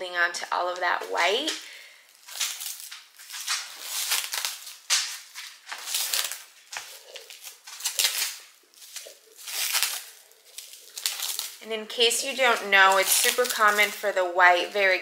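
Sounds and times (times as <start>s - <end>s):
plastic bag crinkling: 1.3s - 15.0s.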